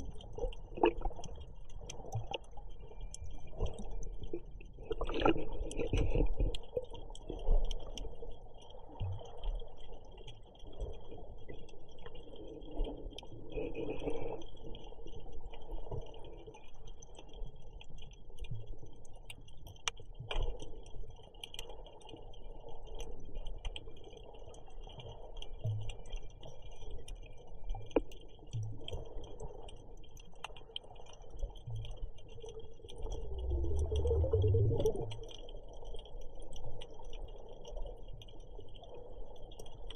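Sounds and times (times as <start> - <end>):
sharp underwater clicks: 0.0 - 39.9
regulator exhale bubbles: 3.8 - 6.9, 32.9 - 35.3.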